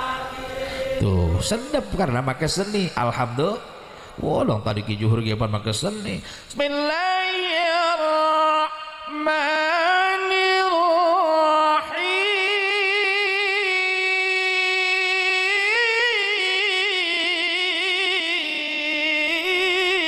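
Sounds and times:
man chanting recitation: 0.0 - 20.0
short breaths: 3.8 - 4.2, 6.2 - 6.5.

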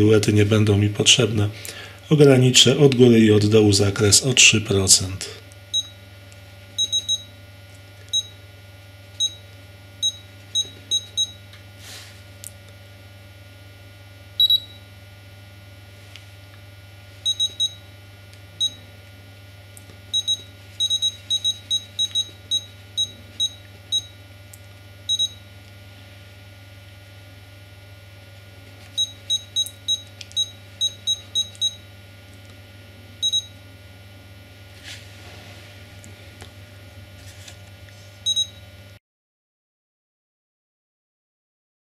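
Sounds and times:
steady low hum: 0.0 - 39.0
transmitter key-press beeps: 6.8 - 7.3, 14.4 - 14.8, 17.3 - 17.8, 20.2 - 24.1, 25.1 - 25.4, 29.0 - 31.8, 33.2 - 33.5, 38.3 - 38.6.

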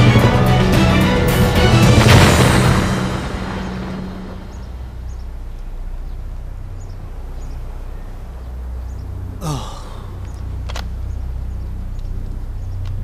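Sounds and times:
low drone: 0.0 - 13.0
breathy exhale: 9.4 - 10.3.

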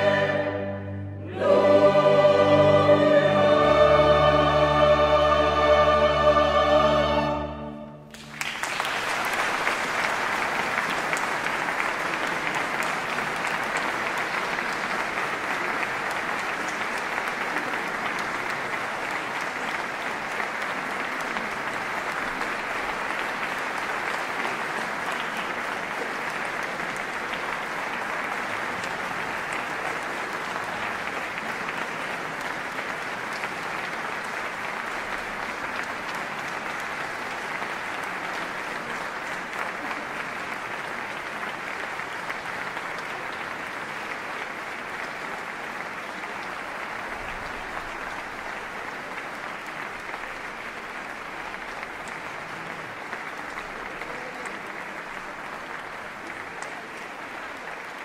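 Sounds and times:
audience applauding: 8.0 - 58.0.

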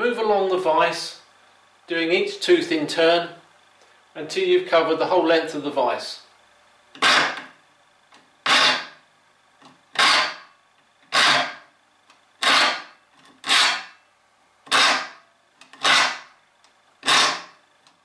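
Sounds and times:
file rasping on saw blade: 7.0 - 7.4, 8.4 - 9.0, 10.0 - 10.5, 11.1 - 11.6, 12.4 - 13.9, 14.7 - 15.2, 15.8 - 16.3, 17.0 - 17.5.

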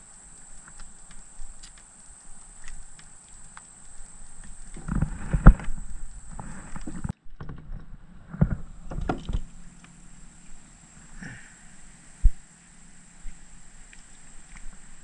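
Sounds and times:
thumps and knocks in plastic kayak: 4.8 - 9.6.

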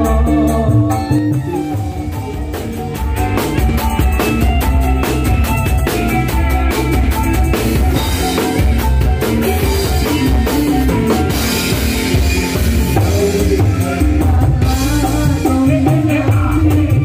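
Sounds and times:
live band playing: 0.0 - 17.0.

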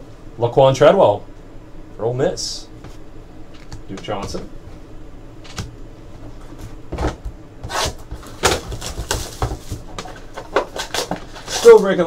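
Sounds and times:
cards rustling and tapping: 8.1 - 12.0.

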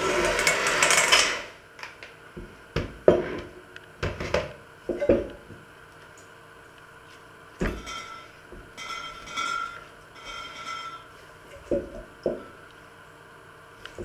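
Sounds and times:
electric hand mixer kneading dough: 0.0 - 1.6
knocks and clunks of bowl handling: 2.4 - 5.7, 11.6 - 12.5.

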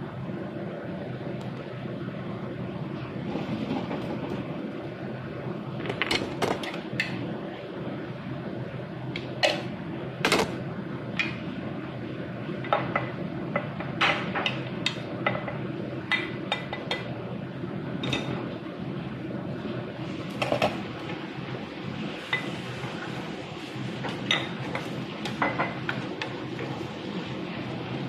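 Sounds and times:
food simmering in a covered pan: 0.0 - 28.0.

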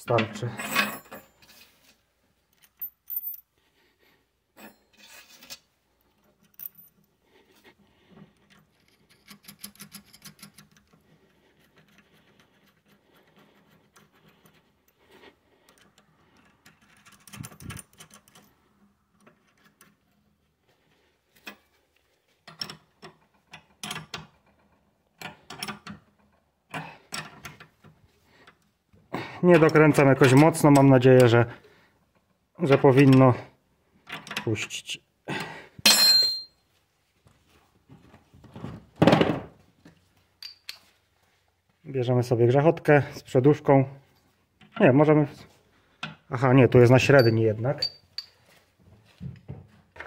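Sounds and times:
metal tool clicks and clinks: 40.4 - 40.9, 47.1 - 48.4.

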